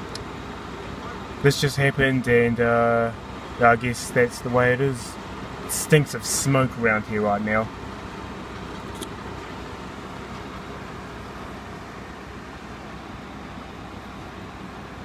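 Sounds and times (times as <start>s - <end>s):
diesel engines idling: 0.0s - 15.0s.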